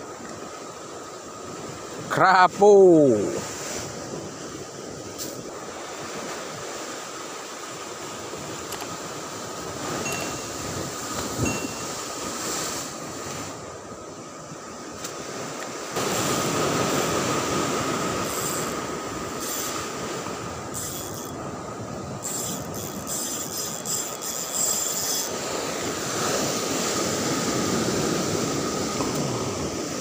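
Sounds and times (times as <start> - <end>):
fishing reel whining: 10.0 - 10.6, 18.1 - 19.9, 20.6 - 21.4, 22.2 - 25.8
surf breaking on rocks: 15.2 - 20.7
fast reel clicking: 18.2 - 18.8, 19.4 - 19.8, 20.7 - 21.4, 22.2 - 25.4.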